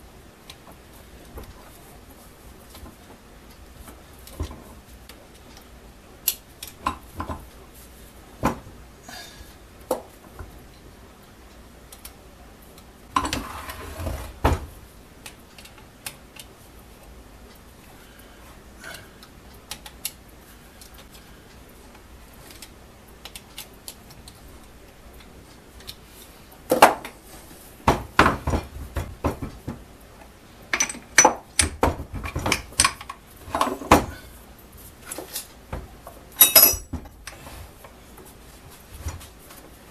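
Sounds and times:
metal tools clinking on metal: 30.7s - 31.7s, 36.4s - 37.0s.

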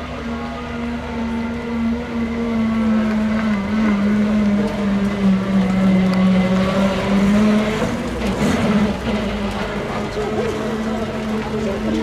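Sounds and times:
van engine running at low revs: 0.0s - 12.0s
tyres rolling on gravel: 2.5s - 12.0s.

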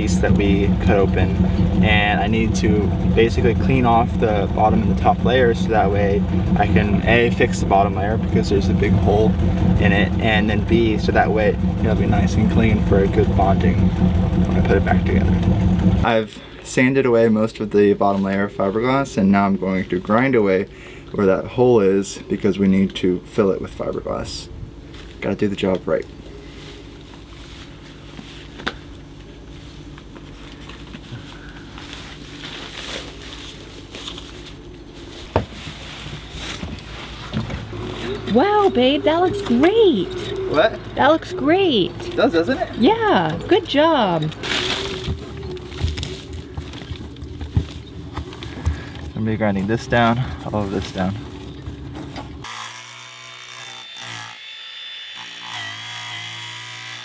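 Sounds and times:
angle grinder grinding fiberglass: 0.0s - 16.1s, 36.3s - 47.0s, 52.4s - 57.0s
steady low hum: 0.0s - 56.9s
rustling of protective clothing: 26.3s - 38.7s, 44.3s - 52.4s.

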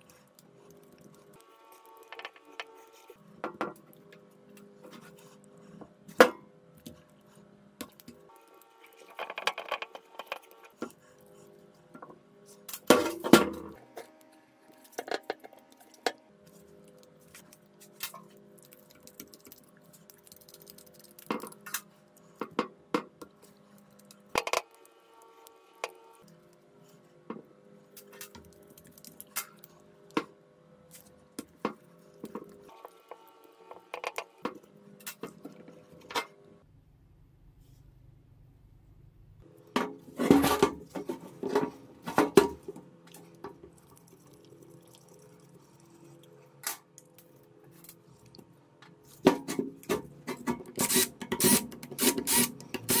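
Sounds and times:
quiet background music: 0.0s - 38.2s.

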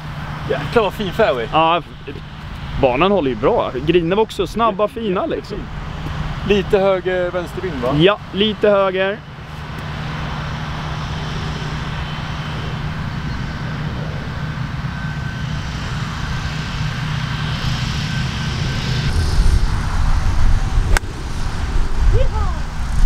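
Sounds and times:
distant engine drone: 0.0s - 23.0s
wind rumbling on microphone: 9.4s - 23.0s.

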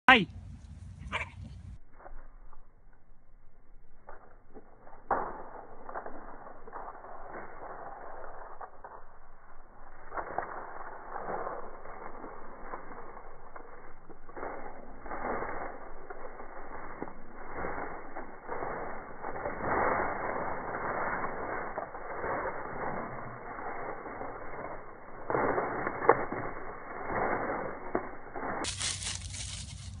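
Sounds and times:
sharp crack: 5.0s - 7.9s
dry leaves crunching underfoot: 13.7s - 30.0s.

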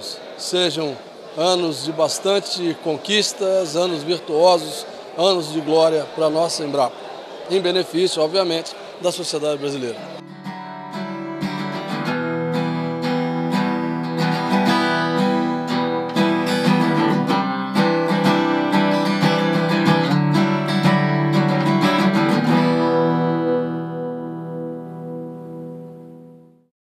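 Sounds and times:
strummed acoustic guitar chords: 10.2s - 26.6s.

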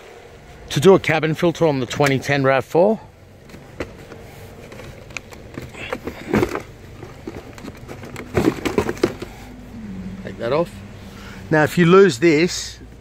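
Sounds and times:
plastic glove box clicks and knocks: 3.4s - 9.3s.

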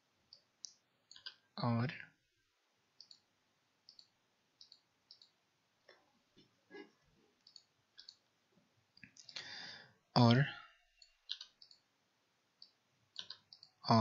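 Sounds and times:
mouse and keyboard clicks: 11.0s - 11.8s.

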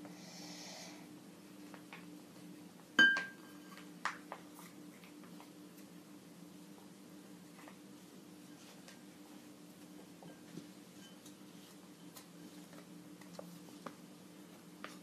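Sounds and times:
low steady hum: 0.0s - 15.0s
glass clink: 3.0s - 3.6s.

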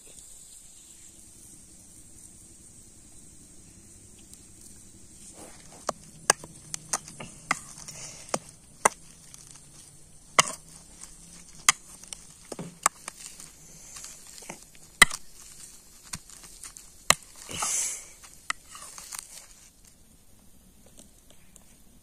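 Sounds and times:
masher scraping bowl: 5.2s - 19.6s.

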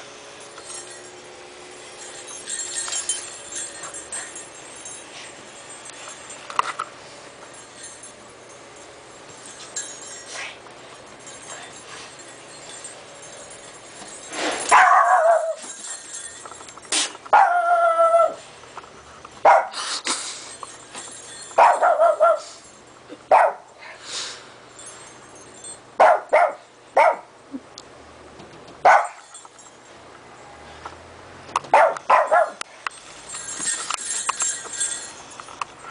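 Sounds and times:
small dogs barking and yipping: 14.6s - 16.3s, 17.3s - 18.5s, 19.4s - 19.9s, 21.2s - 22.6s, 23.3s - 23.7s, 26.0s - 27.3s, 28.8s - 29.4s, 31.6s - 32.7s.

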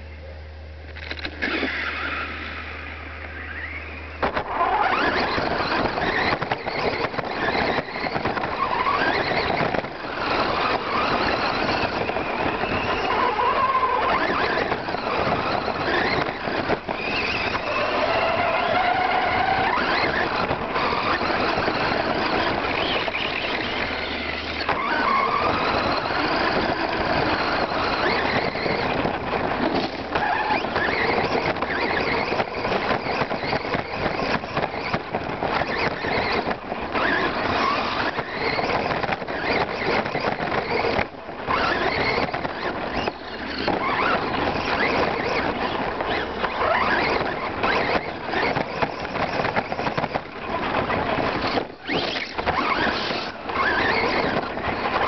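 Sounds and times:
electric motor and gear whine: 0.0s - 55.0s
tyres rattling over dirt and stones: 3.6s - 55.0s.

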